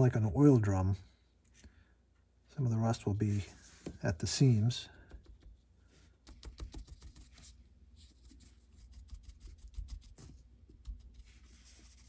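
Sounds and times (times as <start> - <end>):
sponge tapping and rubbing: 6.2 - 7.4.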